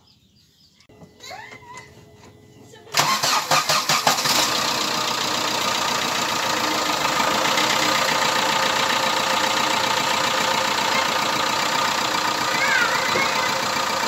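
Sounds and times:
diesel engine idling: 2.9 - 14.0.

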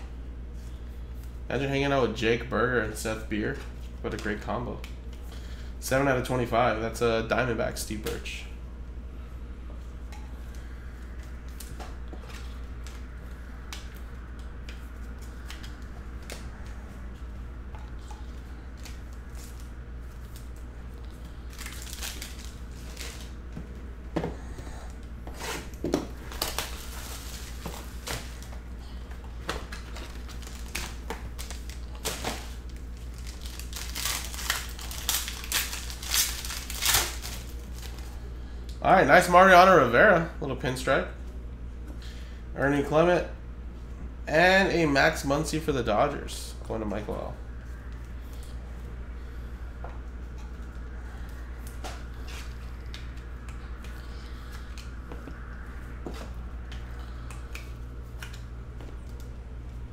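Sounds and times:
low steady hum: 0.0 - 59.9
packaging crinkling and tearing: 18.7 - 23.4, 26.2 - 28.5, 29.6 - 38.2.

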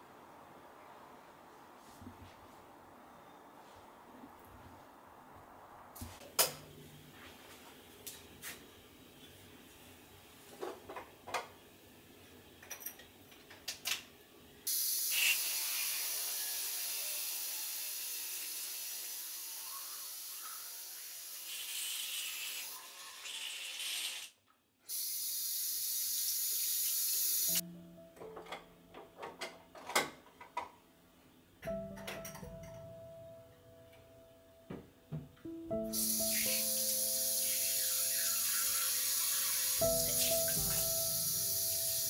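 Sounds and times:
tap water running into basin: 35.9 - 42.0.

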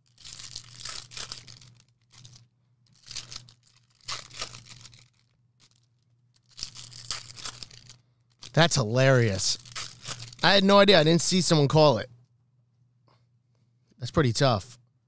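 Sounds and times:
foil wrappers tearing and crinkling: 0.0 - 10.5.

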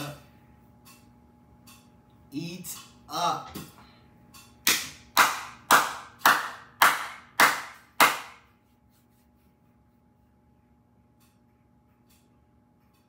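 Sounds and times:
person clapping hands slowly: 4.6 - 8.6.

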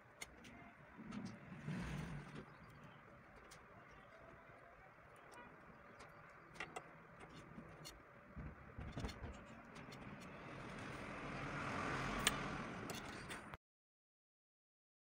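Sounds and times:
vehicle passing: 0.9 - 3.0, 10.0 - 13.6.

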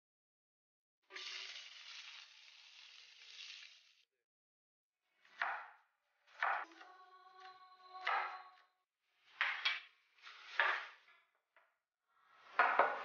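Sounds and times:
vegetables sizzling in pan: 1.1 - 4.0.

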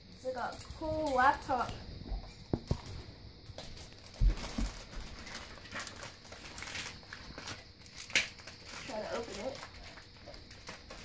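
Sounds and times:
plastic packaging crinkling: 2.5 - 11.0.

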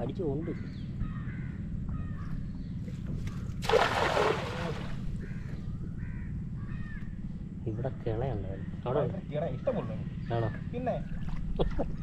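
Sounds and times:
cast net splashing on water: 3.6 - 5.0.

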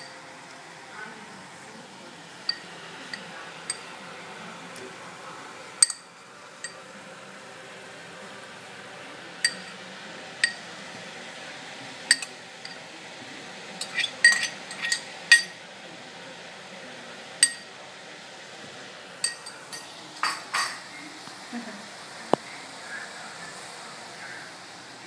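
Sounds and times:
spoon clinking on ceramic: 2.4 - 3.9, 5.8 - 6.8, 9.4 - 9.8, 12.1 - 12.8, 13.8 - 15.6, 17.4 - 17.7, 19.2 - 20.8.

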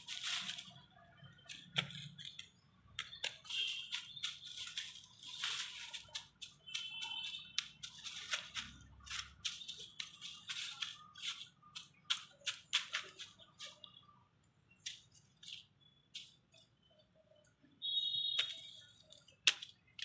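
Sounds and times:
dry leaves crackling and rustling: 0.0 - 2.4, 3.1 - 13.8.

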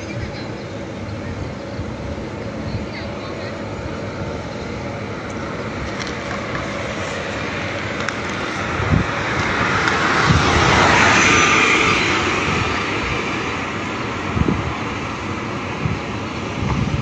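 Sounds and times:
outdoor traffic noise: 0.0 - 17.0
vehicle passing close by: 5.5 - 17.0.

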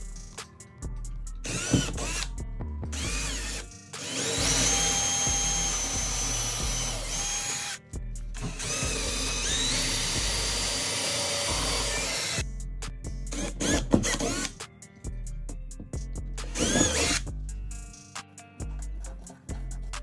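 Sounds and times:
background music: 0.0 - 20.0
cordless drill whining: 1.4 - 2.3, 2.9 - 7.8, 8.4 - 12.4, 13.4 - 14.5, 16.4 - 17.2.

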